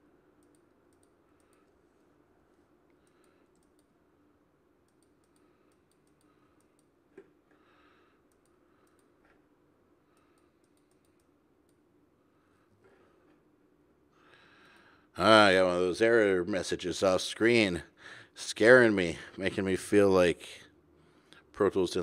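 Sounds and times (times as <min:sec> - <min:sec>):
low steady hum: 0:00.0 - 0:22.0
computer mouse and keyboard clicking: 0:00.4 - 0:04.0, 0:04.8 - 0:07.3, 0:08.3 - 0:09.4, 0:10.1 - 0:11.8.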